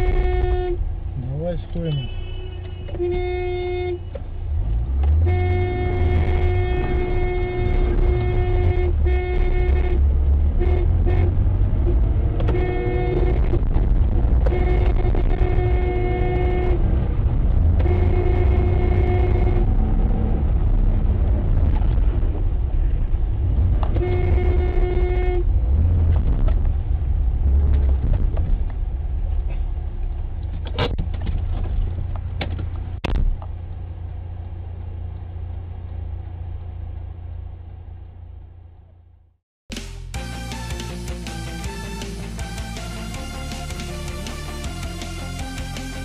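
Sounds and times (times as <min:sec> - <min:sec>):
car horn blasts: 0:00.0 - 0:00.8, 0:01.7 - 0:04.2, 0:05.1 - 0:11.4, 0:12.4 - 0:13.6, 0:14.4 - 0:16.9, 0:17.8 - 0:19.7, 0:23.9 - 0:25.5
engine and road rumble: 0:00.0 - 0:46.0.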